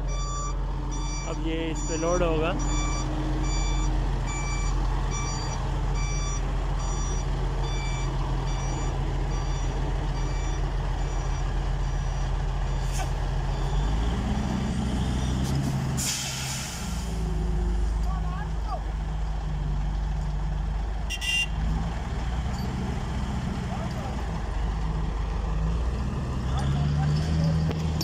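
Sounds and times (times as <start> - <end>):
reversing alarm beeping: 0.0 - 12.9, 13.5 - 14.1
truck diesel engine running: 0.0 - 28.0
air brake hiss: 16.0 - 17.2.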